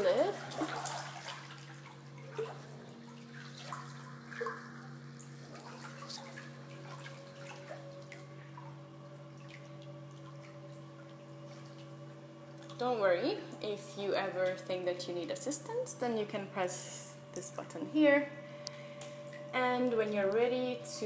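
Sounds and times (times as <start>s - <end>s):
water drips and splashes: 0.0s - 13.0s
steady low hum: 0.0s - 21.0s.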